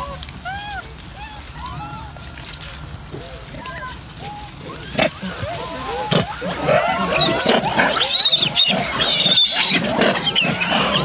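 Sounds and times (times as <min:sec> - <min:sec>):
monkeys squealing and chattering: 0:00.0 - 0:11.0.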